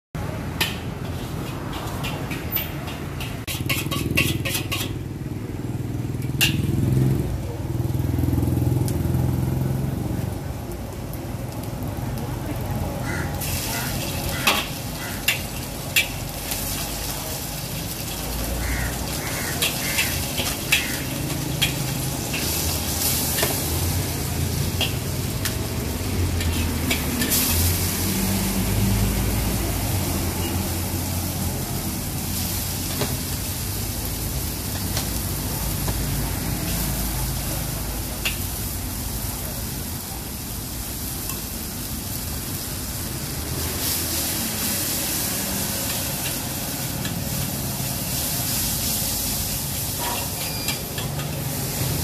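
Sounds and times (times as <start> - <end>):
prawns sizzling in hot oil: 0.2 - 52.0
spatula clanking against wok: 0.5 - 5.2, 6.3 - 6.8, 14.3 - 16.3, 19.0 - 22.7
spatula scraping a wok: 0.5 - 5.4, 13.4 - 28.7, 43.5 - 52.0.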